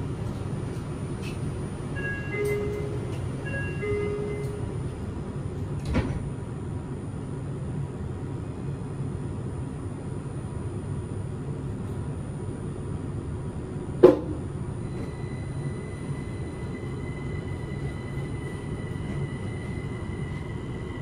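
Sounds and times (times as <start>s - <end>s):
train car low hum: 0.0s - 21.0s
door-closing chime: 2.0s - 4.7s.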